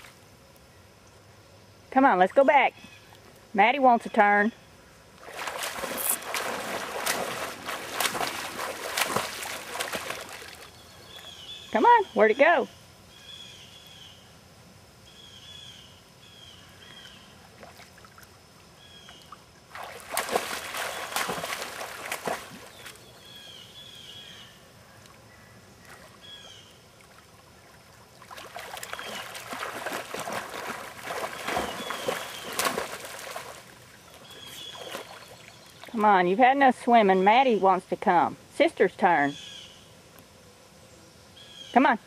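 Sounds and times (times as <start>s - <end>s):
dog splashing in water: 5.2s - 10.8s, 19.7s - 23.0s, 28.2s - 36.0s.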